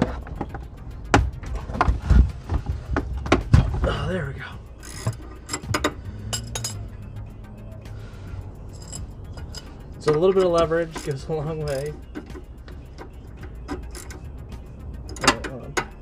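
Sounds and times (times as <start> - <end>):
wrench metal clicks: 4.8 - 6.9, 8.8 - 14.4, 15.0 - 16.0.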